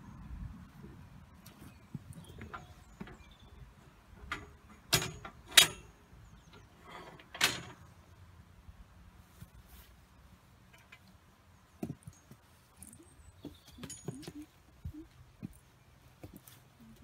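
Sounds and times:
metal chute clanking and rattling: 2.2s - 7.9s.

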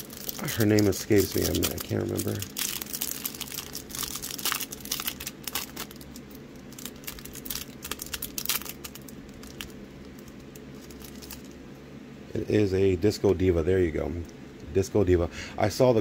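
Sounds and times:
plastic wrapper crinkling: 0.0s - 11.6s.

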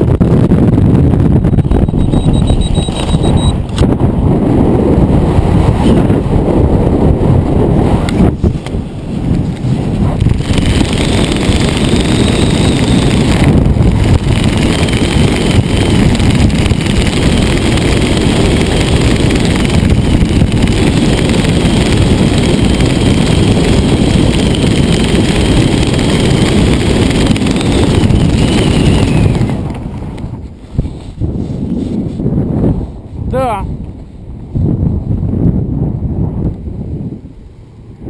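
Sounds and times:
wind rumble on microphone: 0.0s - 38.0s
thin high whistle: 1.6s - 3.6s.

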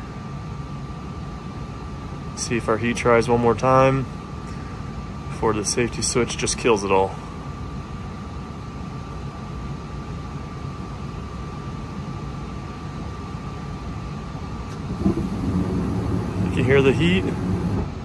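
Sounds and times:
furnace blower fan running: 0.0s - 18.0s
furnace burners lighting: 14.7s - 18.0s.

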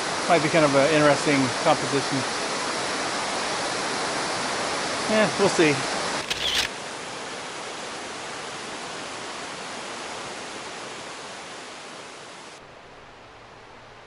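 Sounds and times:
rushing river and waterfall: 0.0s - 14.0s.

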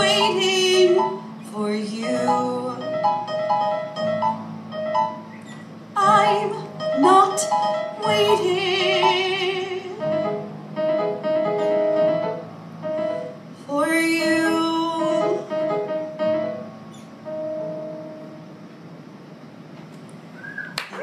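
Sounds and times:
woman singing: 0.0s - 3.0s, 6.0s - 10.1s, 13.7s - 15.6s
keyboard chords: 0.0s - 19.0s.

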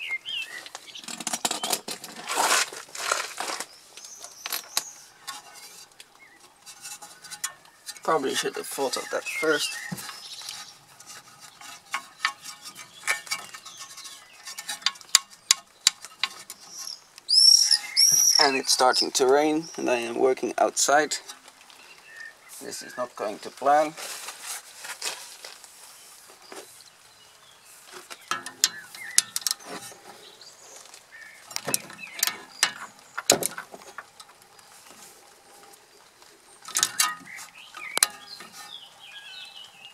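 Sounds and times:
spanner clinking on metal: 28.3s - 29.9s, 31.5s - 33.6s, 36.7s - 38.6s.

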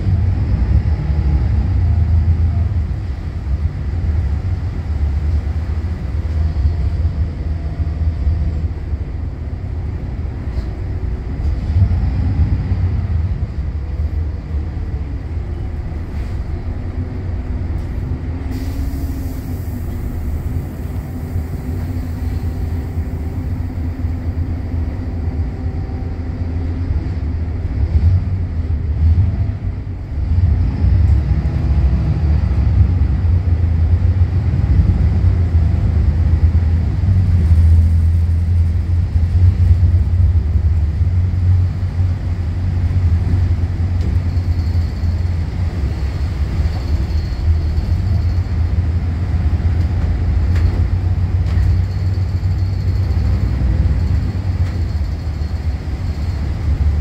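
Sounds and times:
bus diesel engine drone: 0.0s - 57.0s
brief hiss: 18.5s - 20.8s.

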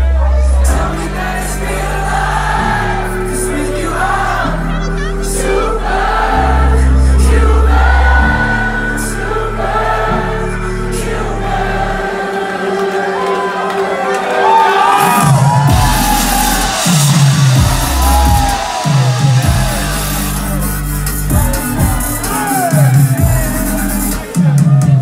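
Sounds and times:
deep bass chords: 0.0s - 12.2s, 15.0s - 25.0s
crowd singing along: 0.0s - 25.0s
sung vocals: 0.0s - 25.0s
electronic dance music: 1.8s - 5.6s, 11.9s - 25.0s.

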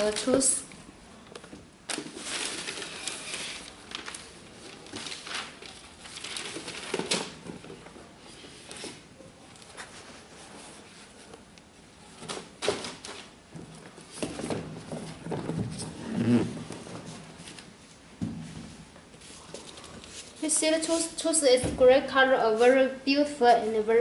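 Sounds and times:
paper rustling and crinkling: 0.0s - 0.6s, 1.9s - 11.5s.

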